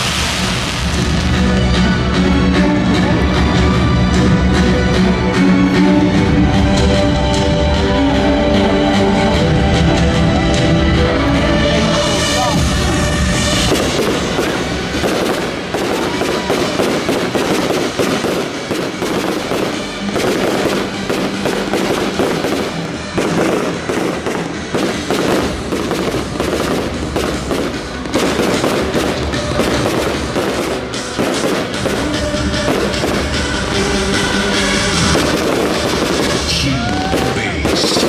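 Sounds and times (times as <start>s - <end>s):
fireworks bangs and crackles: 0.0s - 8.2s, 9.1s - 38.0s
music playing: 0.0s - 38.0s.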